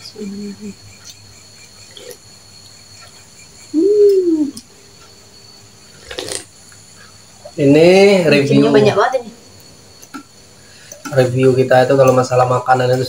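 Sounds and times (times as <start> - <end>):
person humming mmm: 3.7 - 4.6.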